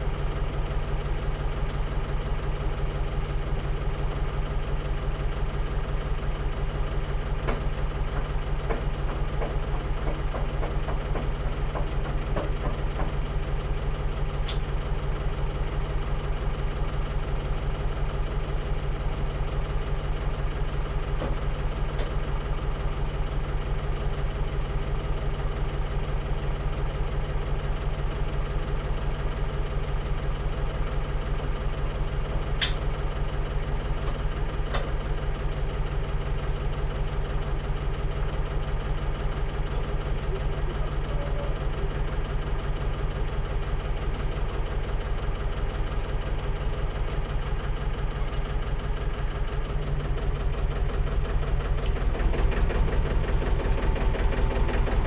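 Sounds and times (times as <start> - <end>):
farm machine engine idling: 0.0 - 55.0.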